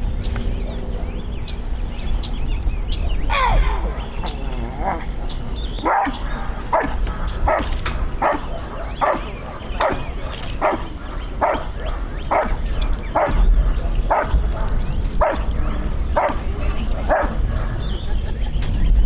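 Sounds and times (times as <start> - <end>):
dog barking: 5.8 - 17.8.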